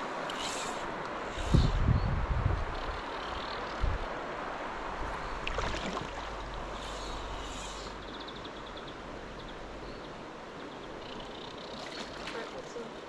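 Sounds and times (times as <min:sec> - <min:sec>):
stream running over stones: 0:03.1 - 0:13.0.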